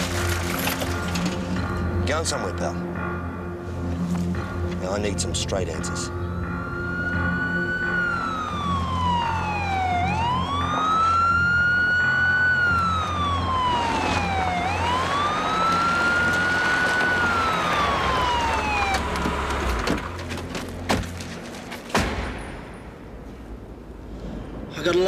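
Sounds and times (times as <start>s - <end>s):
emergency vehicle siren wailing: 5.9s - 19.9s.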